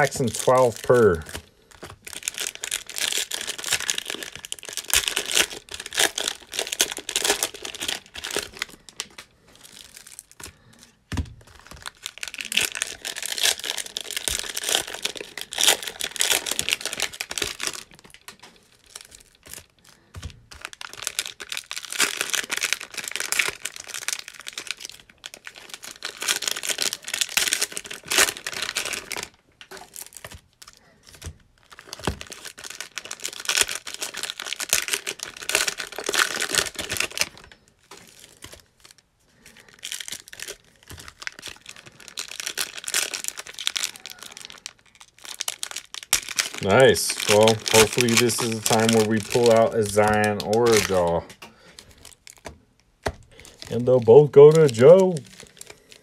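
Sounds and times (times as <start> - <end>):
foil wrappers crinkling and tearing: 0.0 - 56.0.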